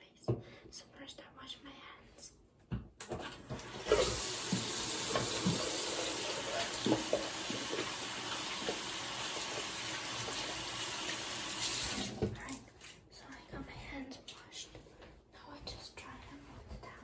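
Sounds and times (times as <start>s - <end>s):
tap running into sink: 3.0s - 12.4s.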